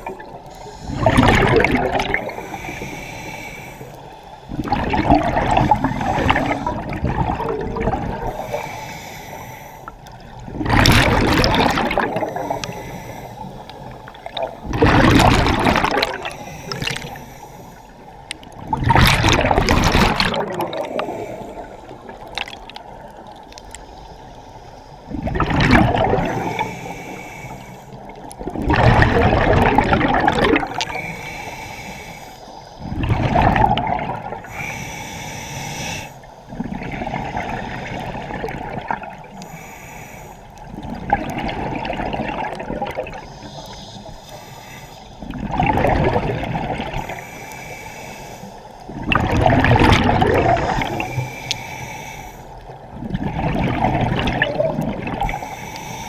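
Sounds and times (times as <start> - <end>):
exhaled bubbles rushing: 0.0 - 2.5, 4.5 - 8.5, 10.3 - 12.8, 14.2 - 17.2, 18.4 - 23.1, 25.1 - 26.7, 28.2 - 30.9, 32.8 - 34.5, 36.5 - 39.3, 40.7 - 43.3, 45.2 - 47.2, 48.9 - 51.2, 52.9 - 55.4.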